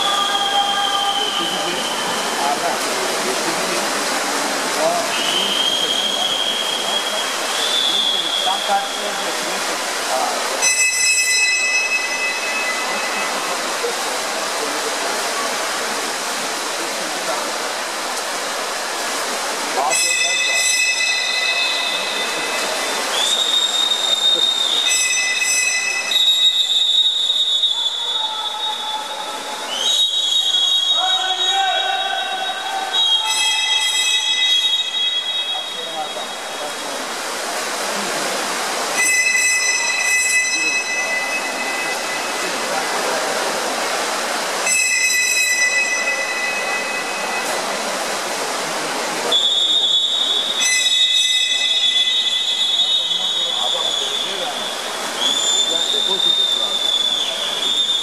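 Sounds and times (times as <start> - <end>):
noisy din of pool hall: 0.0 - 58.0
high-pitched whistle blasts: 5.2 - 9.2, 10.6 - 13.4, 19.9 - 36.6, 39.0 - 42.3, 44.6 - 47.6, 49.3 - 58.0.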